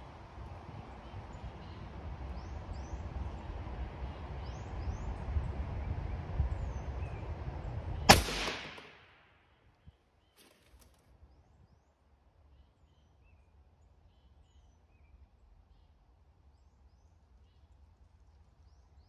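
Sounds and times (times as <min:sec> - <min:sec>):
rifle shot: 0:08.1 - 0:09.3.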